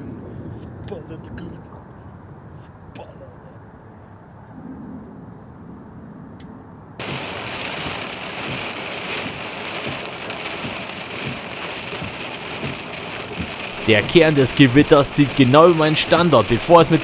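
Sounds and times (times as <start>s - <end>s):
low thunder rumble: 0.0s - 2.5s, 4.4s - 17.0s
heavy rain falling: 7.0s - 17.0s.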